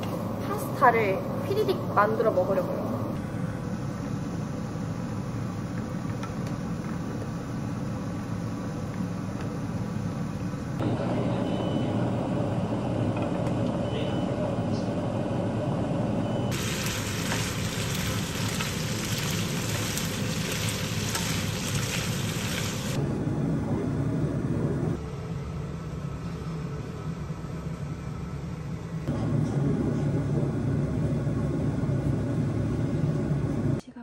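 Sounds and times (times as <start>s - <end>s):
pasta sizzling in frying pan: 16.5s - 23.0s
steady low rumble: 16.6s - 25.9s.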